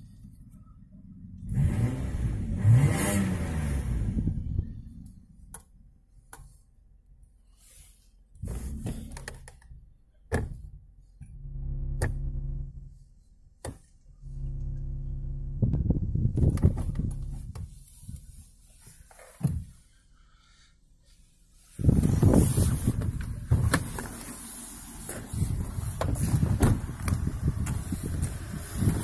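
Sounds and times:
car engine revving: 1.3 - 5.5, 11.2 - 13.0, 14.2 - 17.6, 21.8 - 29.0.

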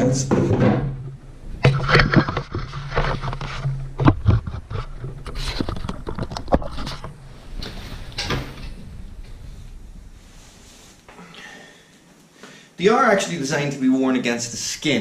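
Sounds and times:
shirt fabric rustling and scraping: 1.4 - 11.1.

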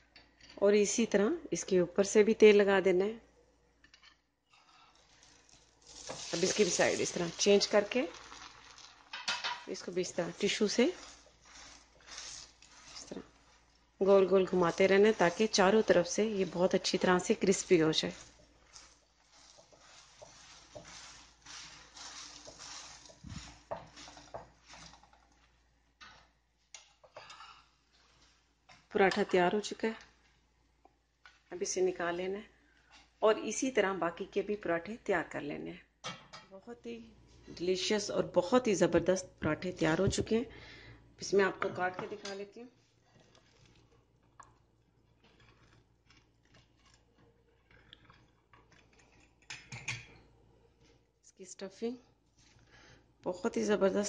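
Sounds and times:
flatbread sizzling in a pan: 3.9 - 29.0, 42.7 - 51.2, 52.1 - 53.2
tissue rubbing: 10.2 - 25.0
pizza cutter crunching through bread: 10.9 - 13.3, 45.1 - 49.4.

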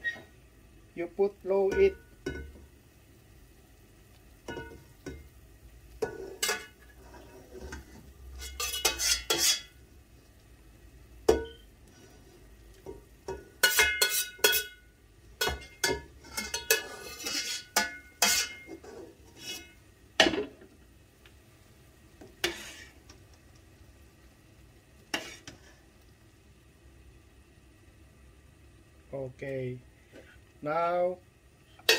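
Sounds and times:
metal spoon scraping a pot: 6.0 - 9.8, 13.6 - 14.8, 15.4 - 19.8, 22.4 - 23.0, 25.1 - 25.7.

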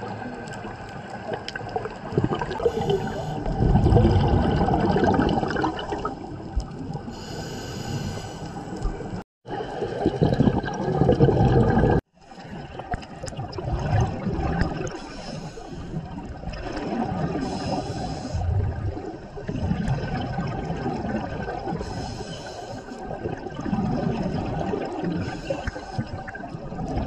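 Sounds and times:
bubbles gurgling underwater: 0.0 - 7.3, 8.8 - 15.0, 15.9 - 22.2, 22.9 - 27.0
diver breathing through regulator: 2.6 - 3.6, 7.1 - 8.9, 14.9 - 16.1, 17.4 - 18.6, 21.8 - 23.1.

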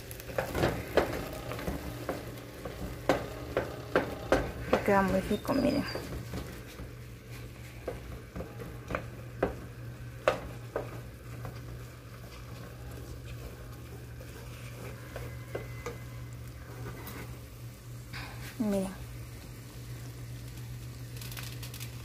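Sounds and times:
faint sizzle of oil: 0.0 - 22.0
spoon mashing potatoes in pot: 0.1 - 17.3.

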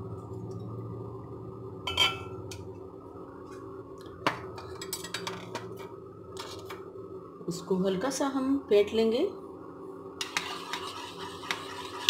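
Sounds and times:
steady low hum: 0.0 - 12.0
metal spoon clinking on dishes: 1.9 - 2.4.

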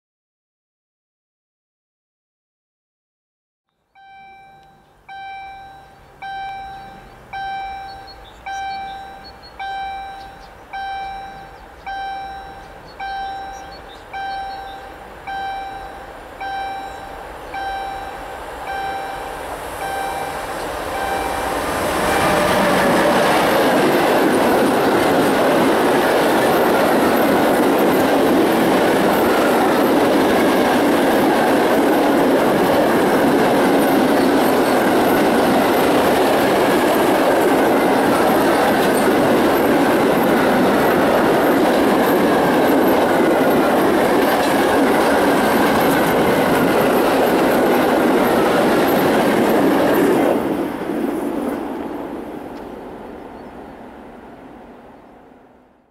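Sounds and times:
level crossing bell dinging: 4.0 - 21.6
freight train wheels rumbling on rail: 4.4 - 55.1.

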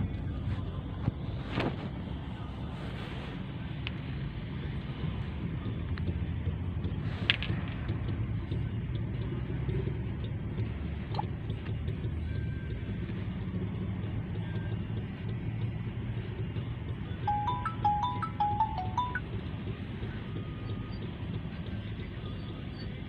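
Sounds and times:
vehicle engine and tyres rumbling: 0.0 - 23.0.

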